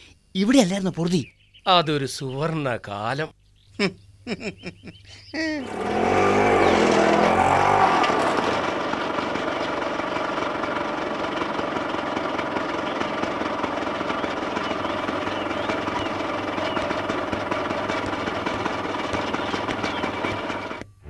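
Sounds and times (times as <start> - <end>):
auto-rickshaw engine running: 5.6 - 20.9.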